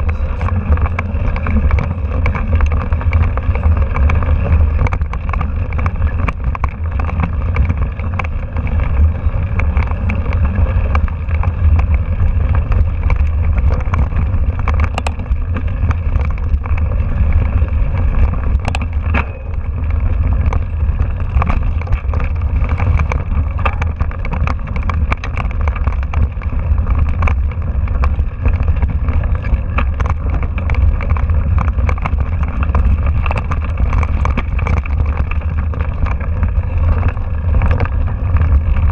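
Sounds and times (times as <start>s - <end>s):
bike frame rattling: 0.0s - 38.9s
wind rumble on microphone: 0.0s - 38.9s.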